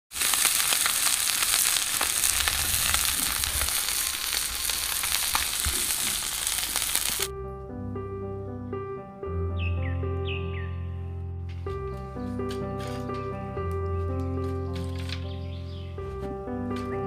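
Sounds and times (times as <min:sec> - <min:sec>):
fish sizzling in oil: 0:00.1 - 0:07.3
instrumental music: 0:07.0 - 0:17.0.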